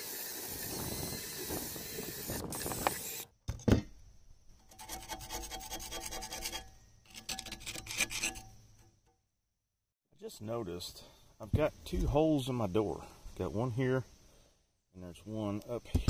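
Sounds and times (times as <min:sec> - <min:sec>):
drill with wire wheel on metal: 0:00.0 - 0:03.3
screwdriver scraping rust: 0:04.6 - 0:08.9.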